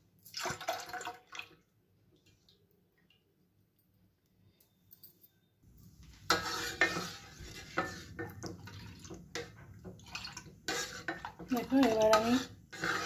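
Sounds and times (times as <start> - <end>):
metal ladle scraping a metal pot: 6.2 - 13.0.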